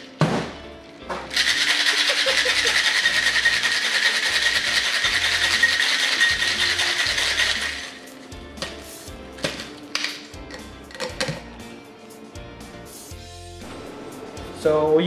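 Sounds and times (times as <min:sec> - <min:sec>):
ice rattling in cocktail shaker: 0:01.3 - 0:08.1.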